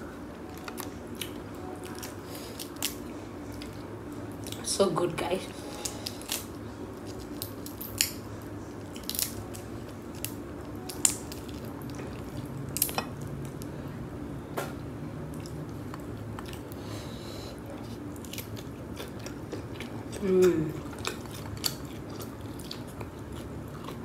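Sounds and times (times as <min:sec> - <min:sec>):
crab shell cracking: 0:07.1 - 0:08.2, 0:09.0 - 0:09.4.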